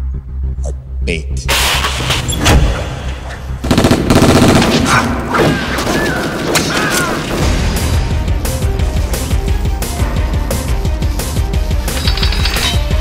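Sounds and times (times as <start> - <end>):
music: 0.0 - 13.0
rapid automatic gunfire: 3.6 - 5.0.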